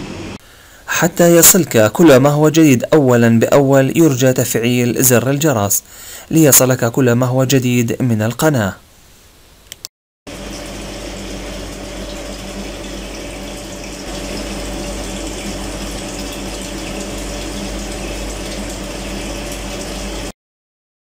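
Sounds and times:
liquid pouring and splashing into tank: 10.3 - 20.3
pump humming: 10.3 - 20.3.

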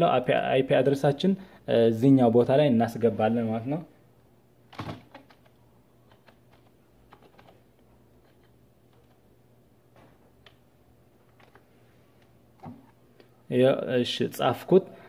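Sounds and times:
computer keyboard typing: 4.7 - 9.2, 11.3 - 11.6.

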